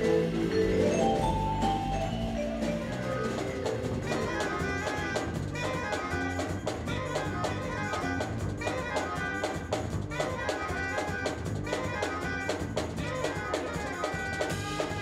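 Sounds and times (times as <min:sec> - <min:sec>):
jazz band playing live: 0:00.0 - 0:06.9, 0:13.6 - 0:15.0
drum kit strokes: 0:00.0 - 0:15.0.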